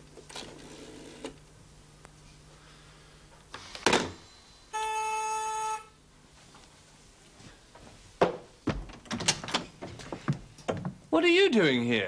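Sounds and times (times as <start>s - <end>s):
steady buzzing tone: 4.2s - 6.2s
door being opened: 8.3s - 11.0s
sharp clicks and knocks: 8.3s - 11.0s.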